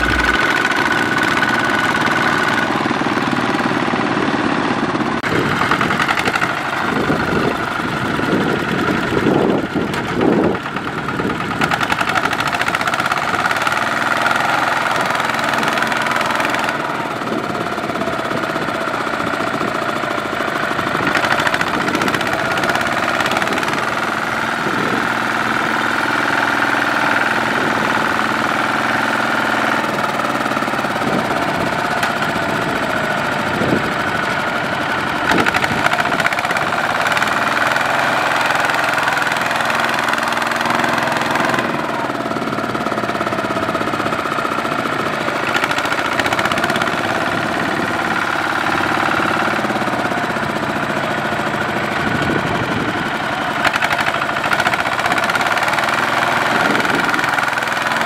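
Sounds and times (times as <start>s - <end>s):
steady high whine: 0.0s - 1.0s
diesel engine running: 0.0s - 58.0s.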